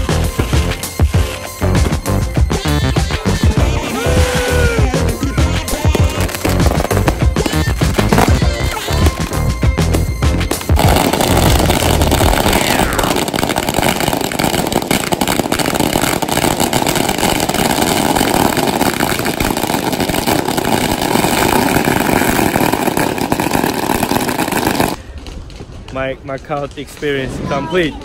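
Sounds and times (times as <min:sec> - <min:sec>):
firecrackers crackling: 0:00.0 - 0:28.0.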